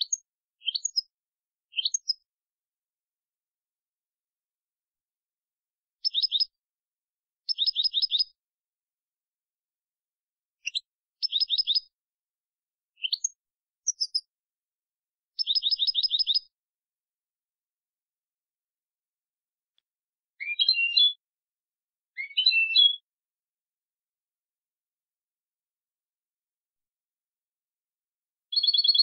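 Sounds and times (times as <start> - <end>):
goldfinch singing: 0.0 - 1.1, 1.7 - 2.2, 6.0 - 6.5, 7.5 - 8.3, 10.6 - 11.9, 13.0 - 14.3, 15.4 - 16.5, 20.4 - 21.2, 22.2 - 23.0, 28.5 - 29.0.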